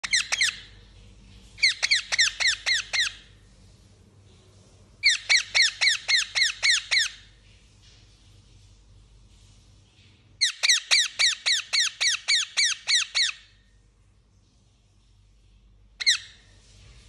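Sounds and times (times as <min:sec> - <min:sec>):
parakeet calling: 0:00.0 - 0:00.7, 0:01.6 - 0:03.4, 0:05.0 - 0:07.3, 0:10.4 - 0:13.5, 0:16.0 - 0:16.5.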